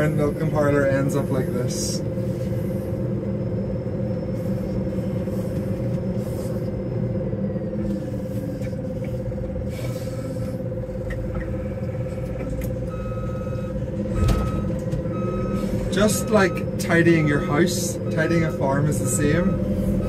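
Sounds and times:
diesel engine running: 0:00.0 - 0:20.0
reversing alarm beeping: 0:12.8 - 0:20.0.

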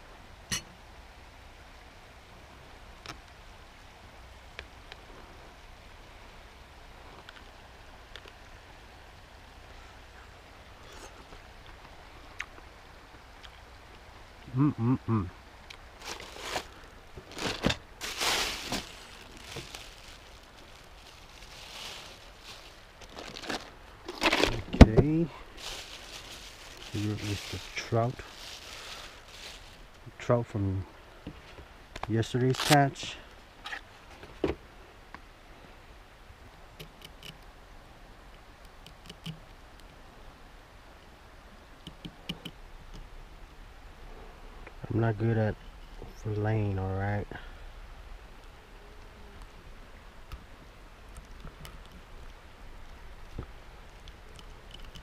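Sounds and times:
faint steady background: 0:00.0 - 0:55.0
crinkling rustle: 0:15.7 - 0:30.2, 0:31.3 - 0:34.4.

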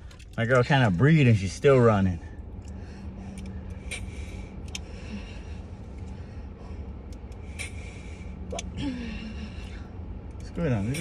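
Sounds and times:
steady low rumble: 0:00.0 - 0:11.0
person breathing hard: 0:02.4 - 0:10.2.

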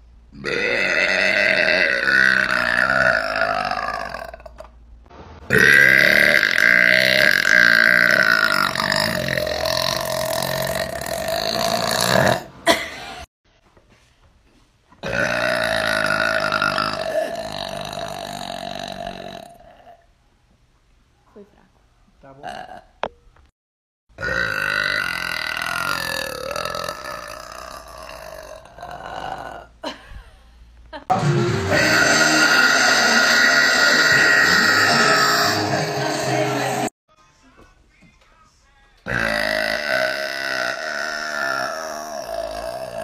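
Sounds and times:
woman burping: 0:00.4 - 0:04.7, 0:05.5 - 0:13.3, 0:15.0 - 0:20.0, 0:22.4 - 0:23.1, 0:24.2 - 0:30.2, 0:39.1 - 0:43.0.

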